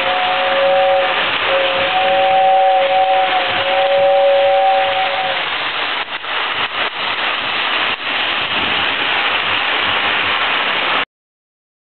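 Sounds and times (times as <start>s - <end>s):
toy train whistle: 0.0s - 5.4s.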